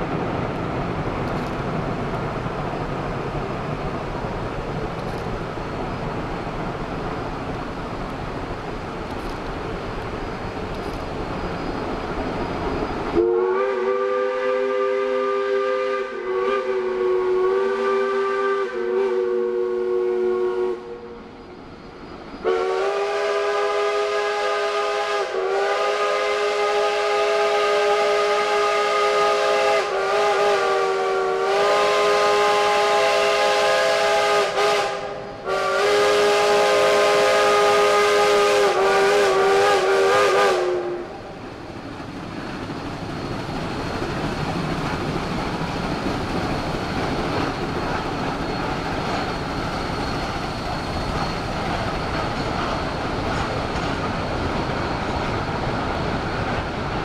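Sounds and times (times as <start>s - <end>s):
steam locomotive whistle blasts: 12.5s - 21.6s, 22.4s - 41.4s.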